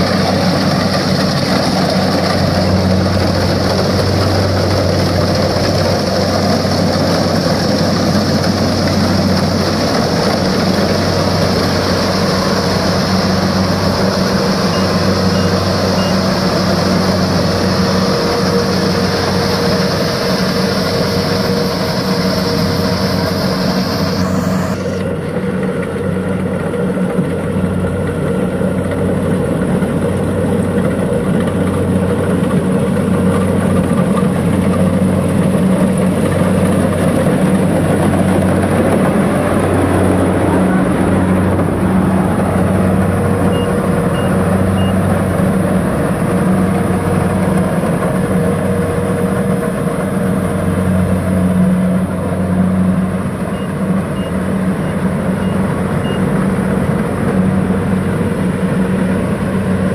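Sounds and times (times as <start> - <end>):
combine harvester engine drone: 0.0 - 59.9
faint short high beeps: 14.7 - 16.3.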